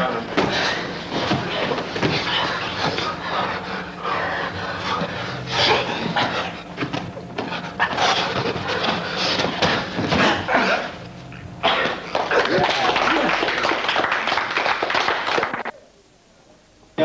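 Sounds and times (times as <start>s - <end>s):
scuffling on mats: 0.3s - 3.6s, 4.8s - 10.5s
hard breathing: 0.4s - 6.8s
men grunting: 8.0s - 11.0s.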